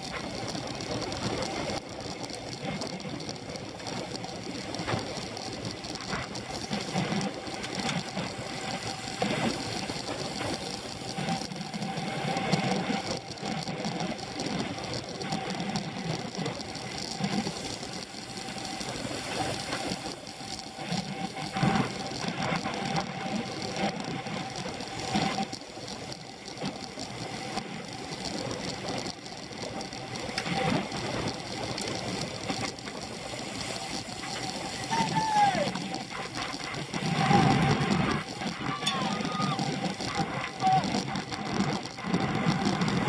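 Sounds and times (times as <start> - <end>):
bicycle drivetrain whir and rattle: 0.0 - 43.0.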